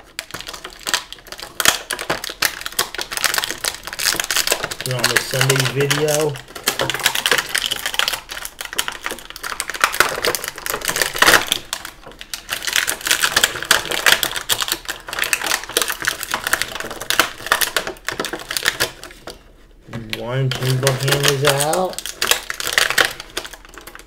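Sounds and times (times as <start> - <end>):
plastic packaging crackling: 0.0 - 24.0.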